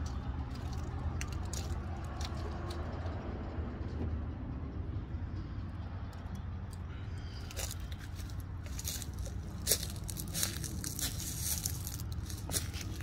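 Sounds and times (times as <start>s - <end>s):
branches crackling and snapping: 0.0s - 2.8s, 7.5s - 13.0s.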